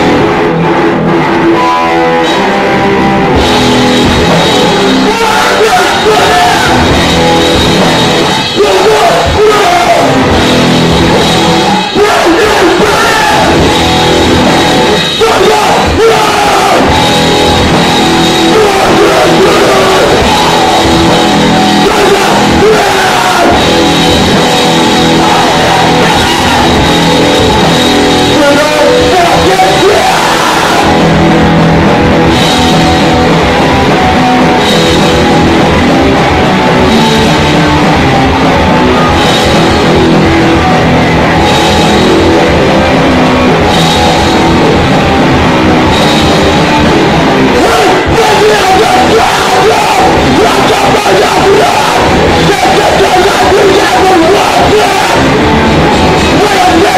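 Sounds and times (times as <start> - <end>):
heavy rock band playing: 0.0 - 56.9
vocalist shouting: 4.8 - 7.0, 8.4 - 10.4, 11.6 - 13.8, 14.9 - 17.3, 18.4 - 27.7, 28.3 - 31.4, 47.5 - 55.5, 56.2 - 56.9.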